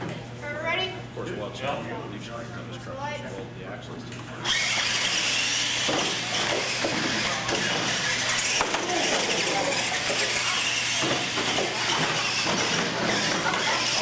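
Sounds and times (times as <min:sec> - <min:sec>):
toy truck electric motors whirring: 0:04.4 - 0:14.0.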